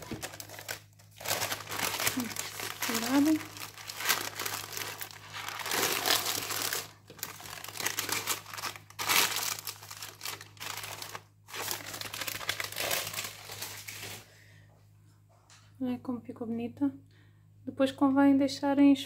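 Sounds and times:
baking paper crinkling: 0:00.0 - 0:14.3.

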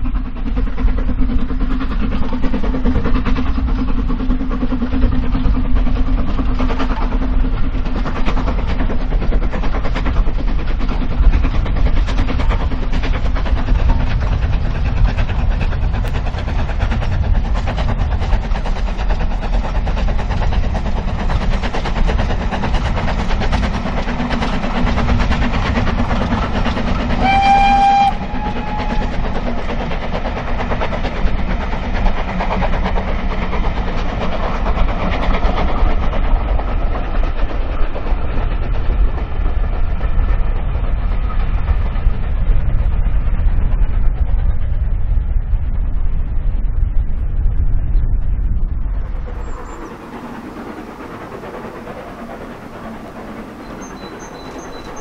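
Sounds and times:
steam locomotive exhaust: 0:00.0 - 0:45.8, 0:49.1 - 0:55.0
train wheels rumbling: 0:00.0 - 0:55.0
steam whistle: 0:27.2 - 0:29.2.

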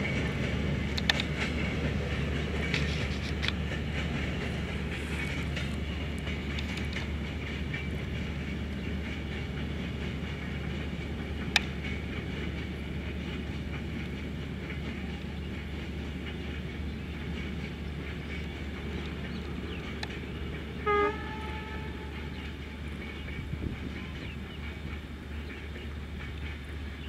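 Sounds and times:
train rumbling: 0:00.0 - 0:27.0
train horn toot: 0:20.8 - 0:22.4.

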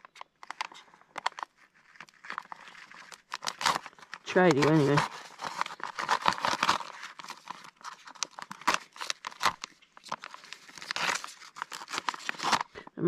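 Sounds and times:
foil pouch crinkling: 0:00.0 - 0:12.8
knife cutting through foil: 0:02.2 - 0:09.7, 0:10.3 - 0:12.7.

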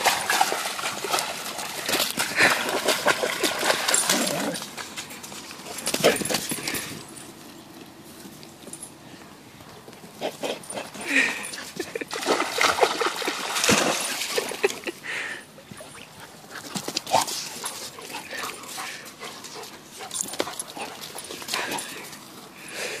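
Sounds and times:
dog splashing through water: 0:00.0 - 0:04.9, 0:12.1 - 0:14.9
rustles: 0:00.0 - 0:23.0.

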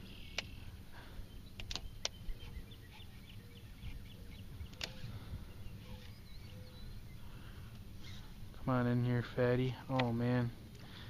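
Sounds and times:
wind rumble: 0:00.0 - 0:10.8
sharp click: 0:01.6 - 0:02.2.

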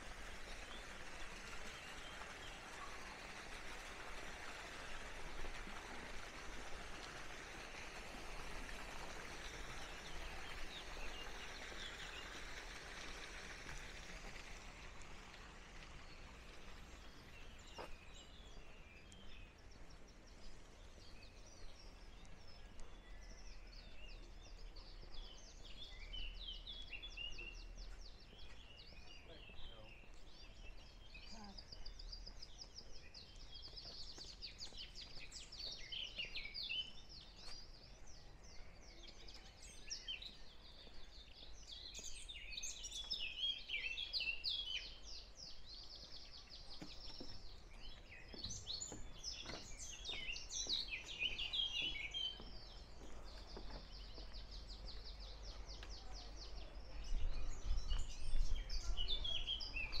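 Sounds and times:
songbirds chirping and trilling: 0:00.0 - 1:00.0.

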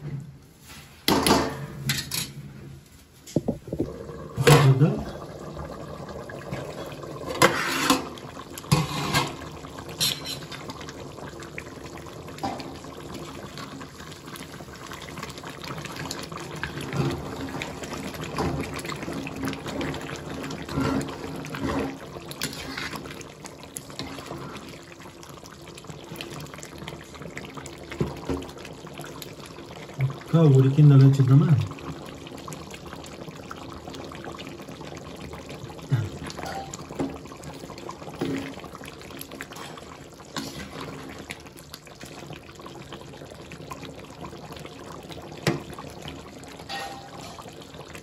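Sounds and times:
curry bubbling and sloshing: 0:03.3 - 0:48.0
metal lid clattering off pot: 0:10.0 - 0:10.5, 0:46.7 - 0:47.2.

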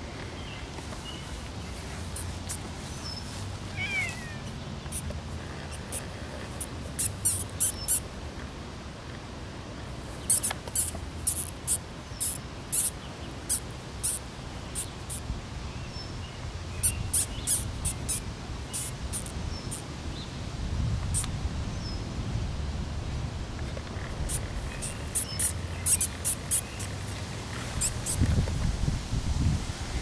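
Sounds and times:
mouse squeaking: 0:03.7 - 0:05.1, 0:05.7 - 0:08.0, 0:10.2 - 0:15.2, 0:16.8 - 0:19.8, 0:24.3 - 0:27.0, 0:27.8 - 0:28.2.

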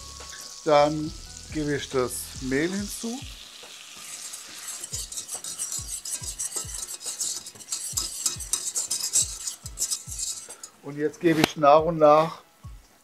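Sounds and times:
butter sizzling: 0:00.0 - 0:10.9
whisk strokes in saucepan: 0:01.6 - 0:10.8.

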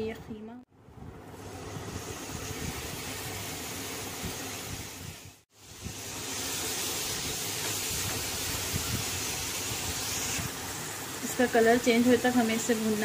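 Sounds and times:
meat sizzling in a frying pan: 0:02.9 - 0:13.0.

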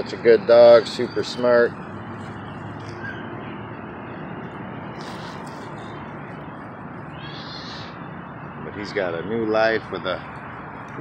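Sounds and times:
high rustle: 0:04.9 - 0:06.0.

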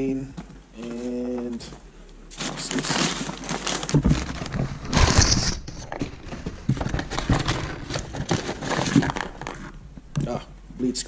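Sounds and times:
cardboard flaps rustling: 0:02.3 - 0:10.4
paper packing crinkling: 0:02.3 - 0:10.4.

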